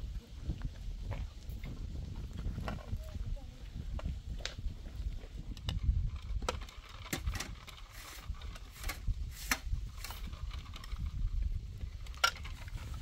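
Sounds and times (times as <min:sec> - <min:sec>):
sharp clicks and knocks: 0:05.5 - 0:11.1.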